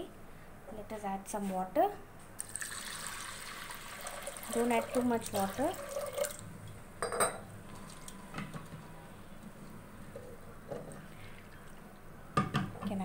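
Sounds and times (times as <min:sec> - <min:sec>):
water pouring: 0:02.4 - 0:06.4
kitchenware clinking: 0:07.0 - 0:07.5.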